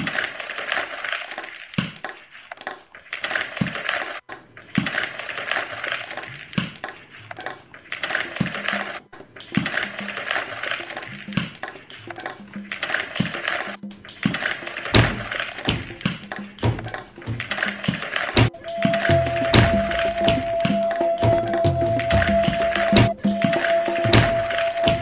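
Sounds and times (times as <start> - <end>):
short low knocks: 15.0 - 16.0, 16.6 - 17.8, 18.4 - 20.8.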